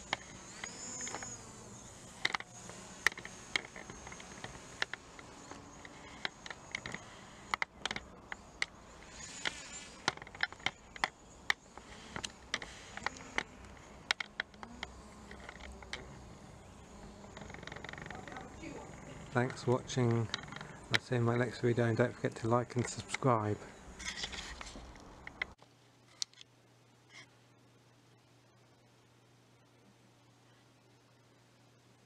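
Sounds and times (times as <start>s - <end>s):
drone propellers buzzing: 0.0s - 25.5s
sharp clicks: 2.0s - 16.3s, 17.1s - 21.5s.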